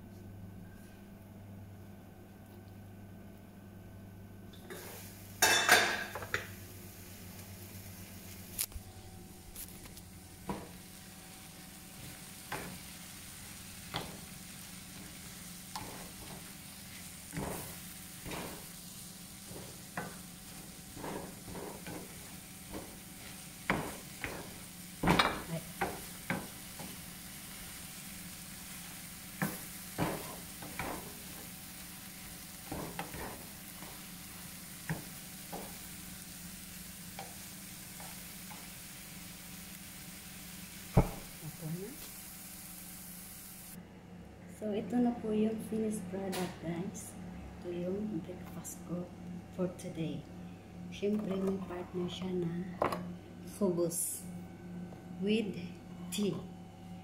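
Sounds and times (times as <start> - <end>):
food sizzling in a frying pan: 4.6 - 43.8
wooden spatula scraping a pan: 14.9 - 18.8, 19.4 - 27.0, 32.6 - 34.1.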